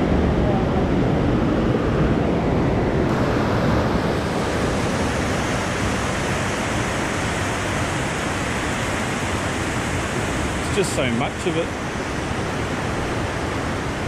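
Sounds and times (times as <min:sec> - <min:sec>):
river rapids rushing: 0:03.1 - 0:14.0.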